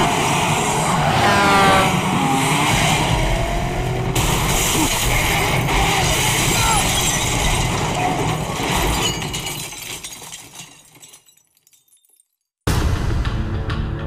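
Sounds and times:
glass breaking: 0:04.2 - 0:12.4.

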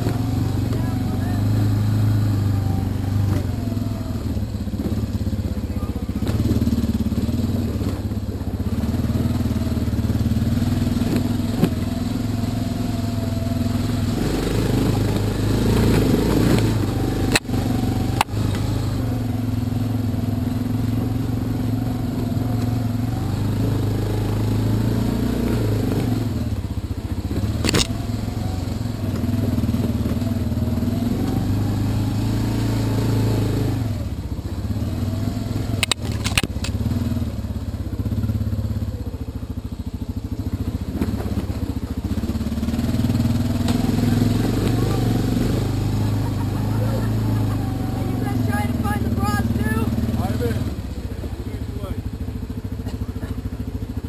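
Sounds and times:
quad bike engine running: 0:00.0 - 0:54.0
sharp click: 0:27.6 - 0:28.0, 0:35.8 - 0:36.8.

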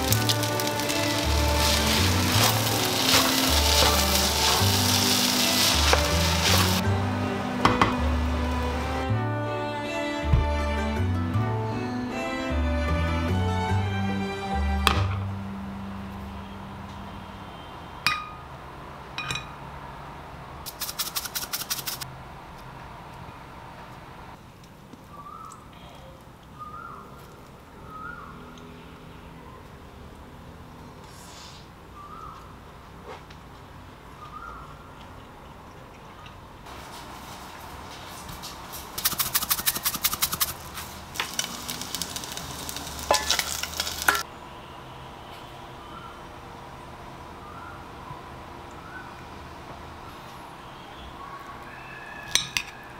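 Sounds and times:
fried egg crackle and scrape: 0:00.0 - 0:06.8, 0:20.7 - 0:22.1, 0:36.7 - 0:44.3
seeds pattering into bowl: 0:00.0 - 0:06.8, 0:20.7 - 0:22.0, 0:38.4 - 0:44.2
clinks on ceramic bowl: 0:18.1 - 0:18.4, 0:19.2 - 0:19.6.

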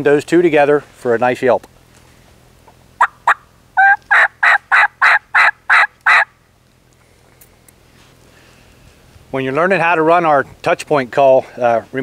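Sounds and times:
turkey call yelps: 0:03.0 - 0:06.3.

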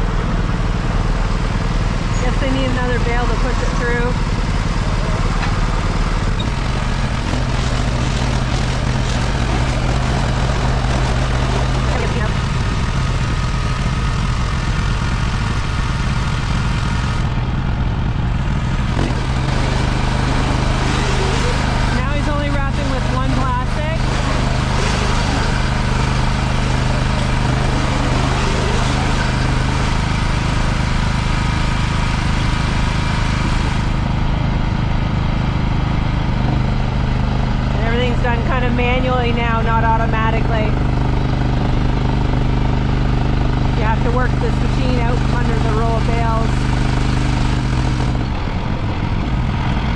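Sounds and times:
diesel tractor engine running: 0:00.0 - 0:49.9.

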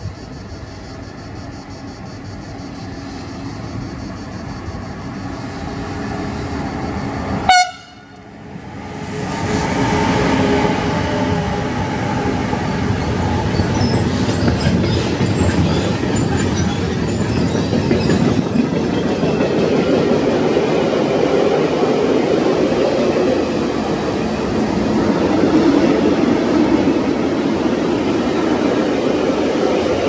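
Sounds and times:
freight train rumbling: 0:00.0 - 0:30.0
train horn blast: 0:07.4 - 0:08.3.

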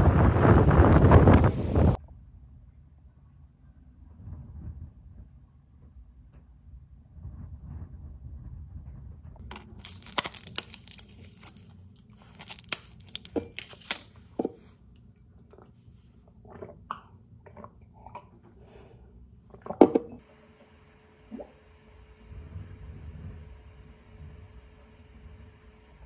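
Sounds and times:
person chewing crunchy food: 0:09.4 - 0:18.4.

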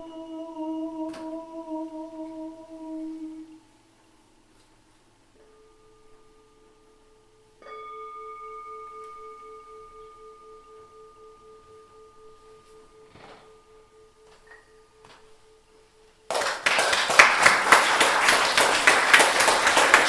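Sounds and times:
faint steady tone: 0:00.0 - 0:16.3
struck bell-like tone: 0:05.4 - 0:16.1.

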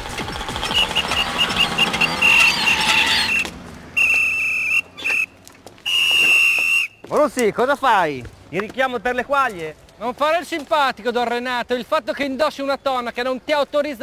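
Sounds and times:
shrill whistle blasts: 0:00.7 - 0:07.0.

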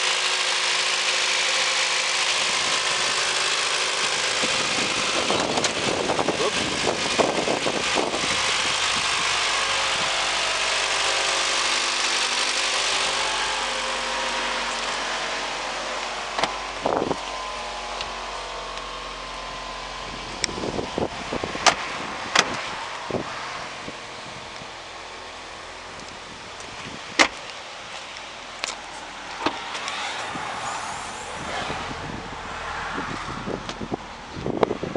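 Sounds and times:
car engine running: 0:00.0 - 0:34.9
car door handle clicks and clunks: 0:21.6 - 0:22.6, 0:27.2 - 0:27.4.

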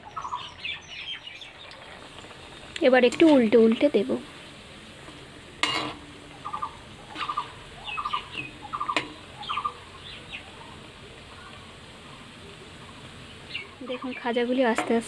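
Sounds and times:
birds chirping: 0:00.0 - 0:15.0
pastries deep-frying in oil: 0:00.0 - 0:15.0
utensil knocking on pan: 0:08.3 - 0:09.2.

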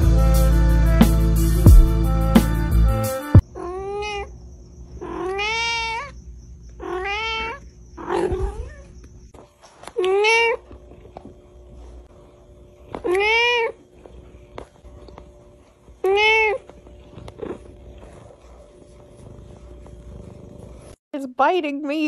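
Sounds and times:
cat meowing: 0:03.5 - 0:04.3, 0:05.0 - 0:06.2, 0:06.8 - 0:09.0, 0:10.0 - 0:10.6, 0:13.0 - 0:13.8, 0:16.0 - 0:16.7.

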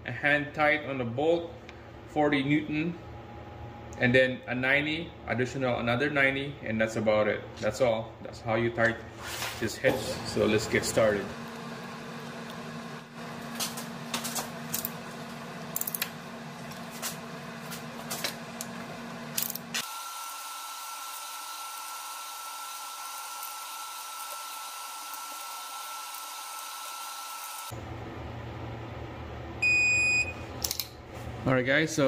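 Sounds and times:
steady hum: 0:00.2 - 0:19.9.

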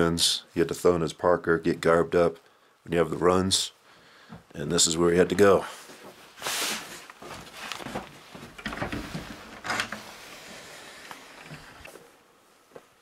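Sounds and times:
wooden door opening: 0:08.4 - 0:10.5.

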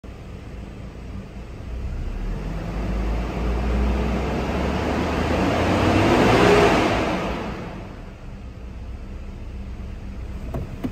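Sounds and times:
car engine revving: 0:01.6 - 0:08.2.

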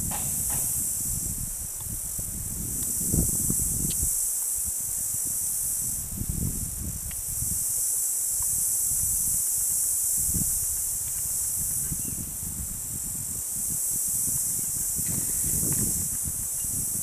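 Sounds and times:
microphone handling bumps: 0:00.0 - 0:04.1, 0:14.4 - 0:16.9
insects buzzing: 0:00.0 - 0:17.0.

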